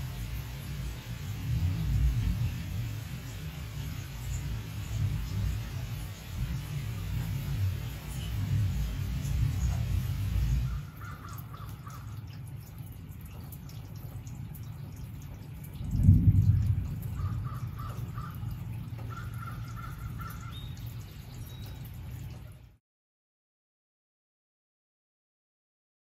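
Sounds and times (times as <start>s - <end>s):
low rumble of thunder: 0.0s - 12.0s, 15.6s - 21.0s
bird calling: 9.5s - 12.2s, 17.1s - 21.9s.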